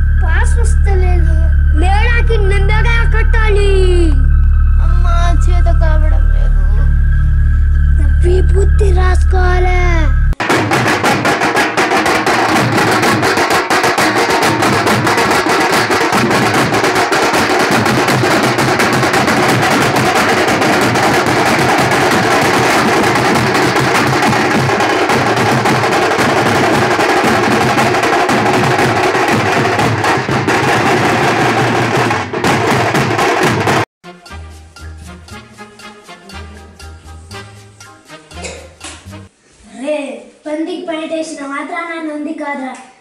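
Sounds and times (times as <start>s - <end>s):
fast dense drumming music: 10.3s - 39.3s.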